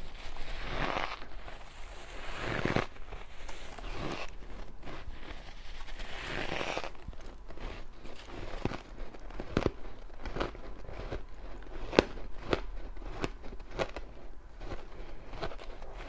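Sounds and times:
shaved ice crunched and chewed: 0.0 - 16.0.

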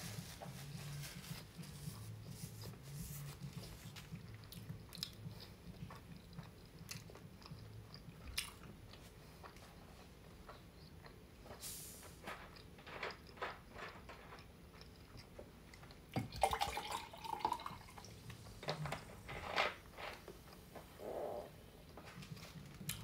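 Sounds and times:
soft chewing and mouth clicks: 0.2 - 11.6, 12.5 - 16.2, 21.8 - 23.0
soda pouring into glass: 16.2 - 18.1.

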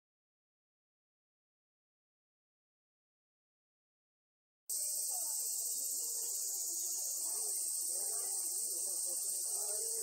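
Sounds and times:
faint distant voices murmuring: 4.7 - 10.0
insect chorus buzzing: 4.7 - 10.0.

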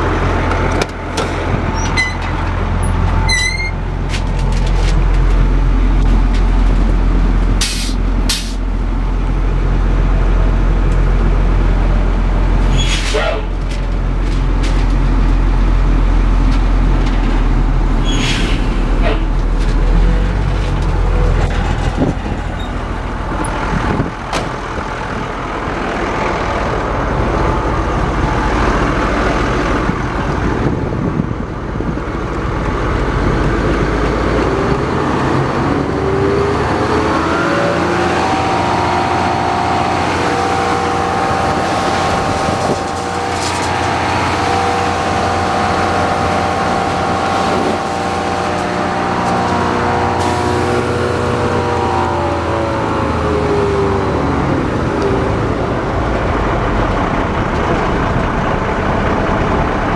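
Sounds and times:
truck engine rumbling: 0.0 - 59.9
rising whine: 19.6 - 59.9.

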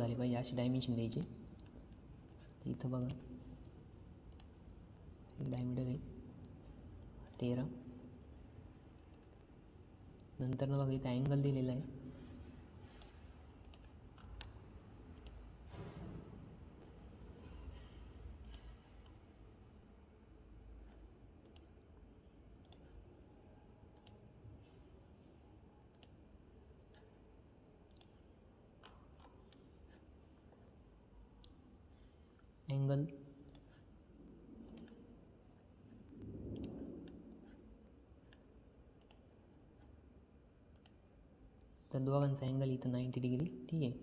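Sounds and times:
faint low hum: 0.0 - 44.0
computer mouse buttons clicking: 4.3 - 4.8, 12.8 - 15.4, 18.4 - 18.8, 20.9 - 21.8, 22.6 - 23.0, 23.9 - 24.2, 25.9 - 26.2, 27.9 - 28.2, 33.4 - 33.8, 34.6 - 35.0, 36.5 - 37.6, 38.3 - 39.4, 40.7 - 41.0
faint computer mouse clicks: 21.4 - 21.8, 22.6 - 23.0, 24.0 - 24.2, 25.9 - 26.2, 34.7 - 35.0, 39.0 - 39.3, 40.7 - 41.0.

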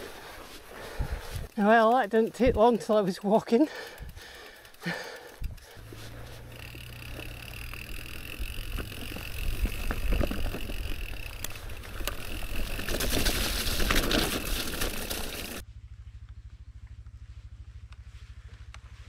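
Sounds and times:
footsteps in wet grass: 0.0 - 1.8, 5.8 - 8.0
bike pushed through grass: 0.0 - 19.0
low rumble: 15.6 - 19.0.

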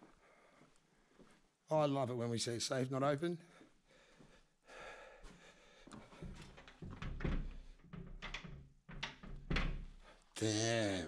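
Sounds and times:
door knocks and thunks: 6.2 - 10.1.

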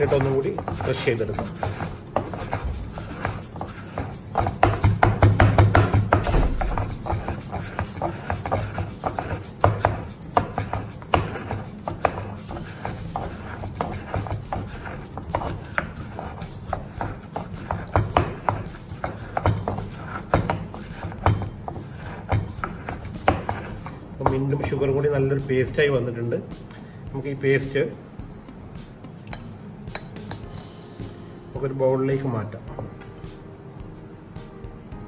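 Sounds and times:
pestle pounding in stone mortar: 0.0 - 25.6.

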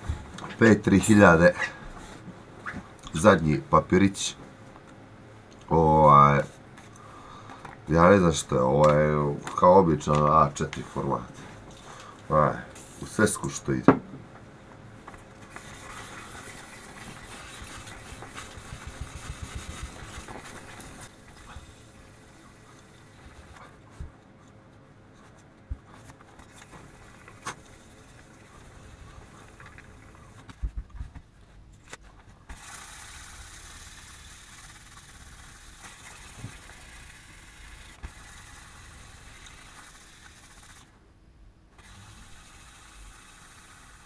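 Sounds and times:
sandpaper rubbing on steel: 15.6 - 21.8.

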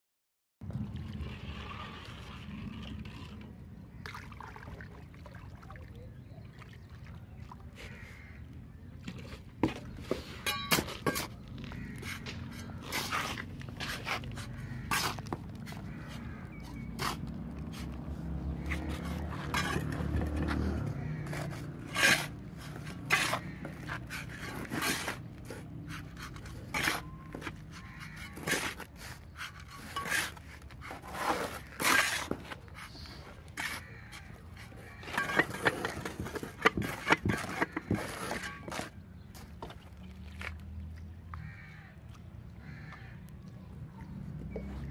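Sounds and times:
gritty scrapes: 1.2 - 4.0, 9.1 - 40.7.

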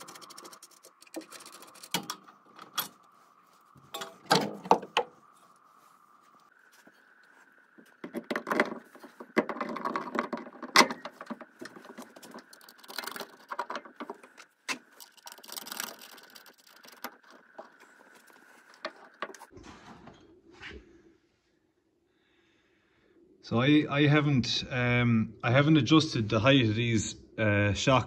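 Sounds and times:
metal parts clinking and rattling: 0.0 - 3.2, 3.8 - 5.1, 8.0 - 19.5.

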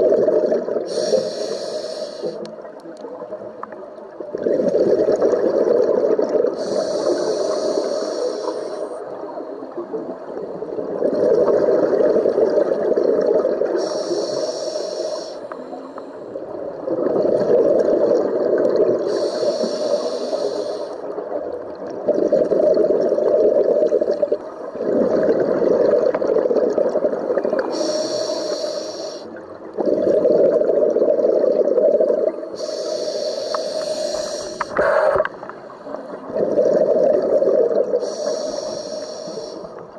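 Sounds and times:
bubbling exhaled air: 0.0 - 2.4, 4.3 - 9.0, 10.6 - 39.8
hissing regulator inhales: 0.9 - 2.4, 6.6 - 9.0, 13.8 - 16.4, 19.0 - 21.1, 27.6 - 29.4, 32.5 - 35.3, 38.0 - 39.8.

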